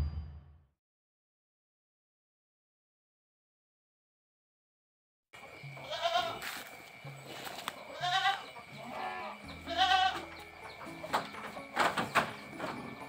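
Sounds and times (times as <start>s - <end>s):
goats bleating: 5.8s - 6.6s, 7.6s - 10.4s.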